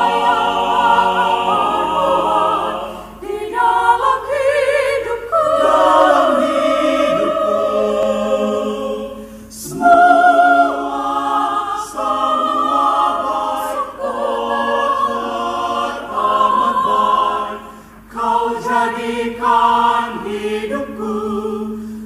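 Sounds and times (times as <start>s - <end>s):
choir singing gospel chorus: 0.0s - 22.0s
singers breathing: 2.9s - 3.2s, 9.1s - 9.6s, 17.6s - 18.1s, 21.8s - 22.0s.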